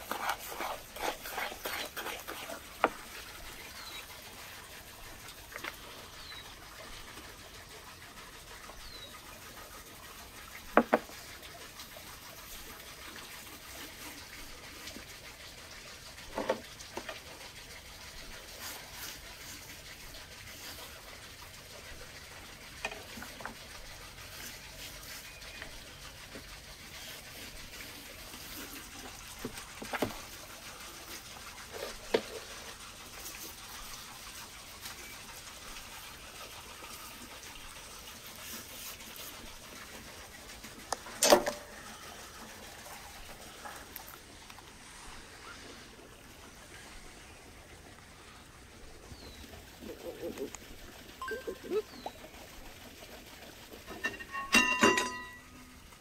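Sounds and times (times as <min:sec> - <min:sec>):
hands rubbing wet marinade: 0:00.0 - 0:04.4, 0:24.0 - 0:30.4, 0:37.6 - 0:41.0
faint bird chirps: 0:51.2 - 0:52.4.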